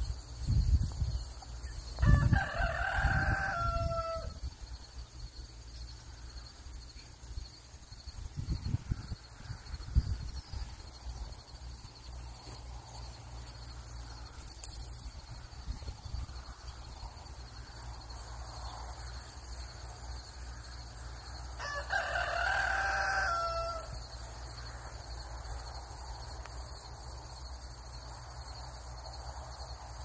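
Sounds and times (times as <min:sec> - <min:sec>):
rooster crowing: 0:02.0 - 0:04.4, 0:21.4 - 0:24.8.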